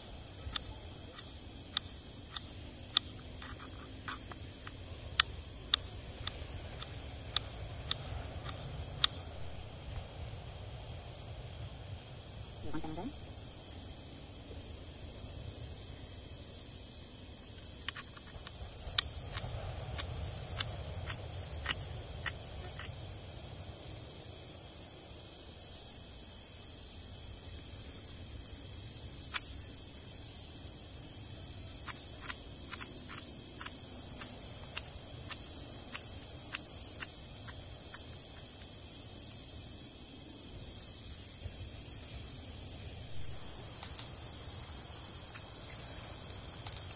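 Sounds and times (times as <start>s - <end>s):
high-pitched insect chorus: 0.0s - 46.9s.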